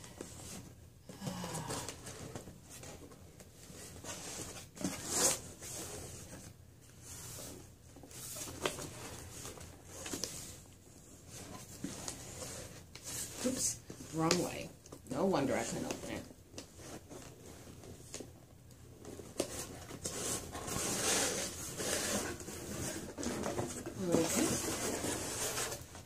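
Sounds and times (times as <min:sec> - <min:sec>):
hands scraping cardboard box: 0:19.2 - 0:26.0.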